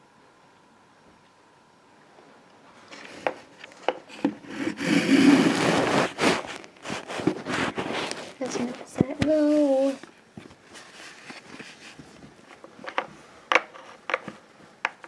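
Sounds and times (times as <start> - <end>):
rubbing and scraping on fabric: 4.1 - 12.6.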